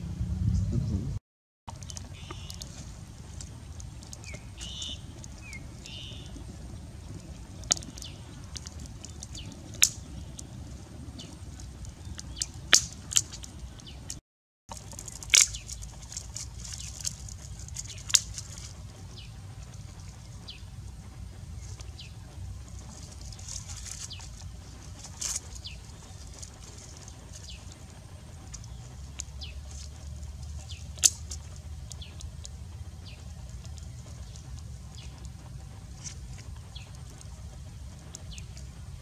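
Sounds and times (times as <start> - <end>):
low steady rumble: 0.0 - 39.0
twig fire crackling: 1.7 - 39.0
sharp fire pops: 3.4 - 14.2, 14.9 - 19.3, 24.9 - 32.4.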